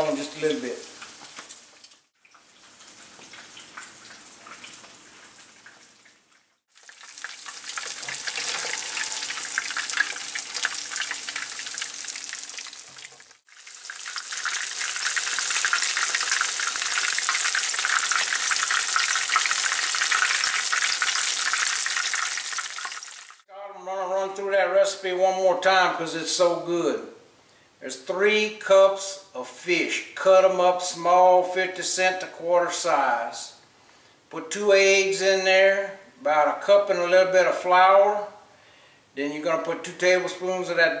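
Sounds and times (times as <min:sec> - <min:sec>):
food sizzling in hot oil: 0:00.8 - 0:23.4.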